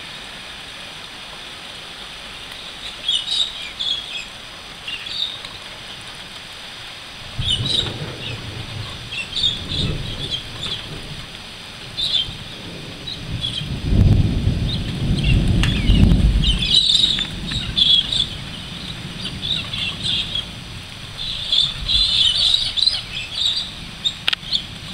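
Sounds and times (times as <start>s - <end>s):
birds chirping and calling: 2.5s - 5.6s, 7.3s - 13.8s, 14.6s - 24.9s
low roll of thunder: 7.2s - 24.9s.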